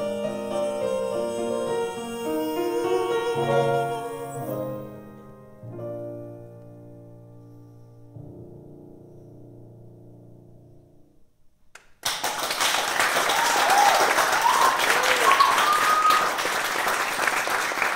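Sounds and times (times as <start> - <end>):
grand piano chord: 0.0 - 11.2
audience applause: 12.0 - 17.9.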